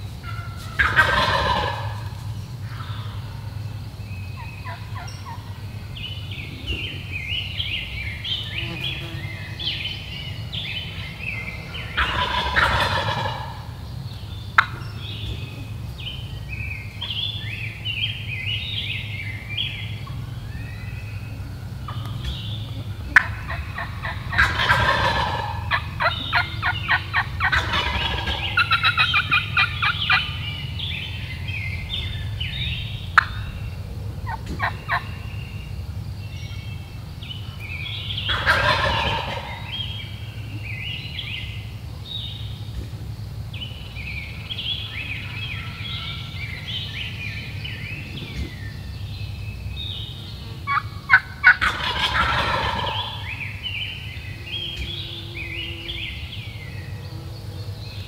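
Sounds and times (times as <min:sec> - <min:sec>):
songbirds singing: 0:00.0 - 0:58.0
turkey gobbling: 0:00.2 - 0:03.5, 0:04.4 - 0:05.7, 0:06.5 - 0:07.1, 0:10.8 - 0:13.8, 0:14.5 - 0:16.0, 0:18.5 - 0:35.4, 0:37.5 - 0:41.6, 0:50.6 - 0:55.1.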